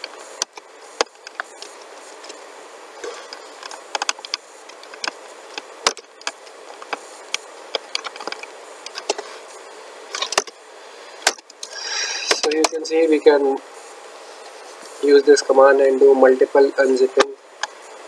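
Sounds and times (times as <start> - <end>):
steady hiss: 0.0 - 18.0.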